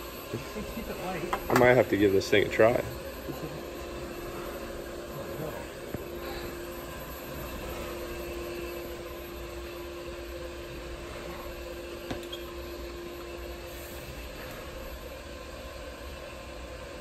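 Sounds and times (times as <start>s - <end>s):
machinery humming: 0.0s - 17.0s.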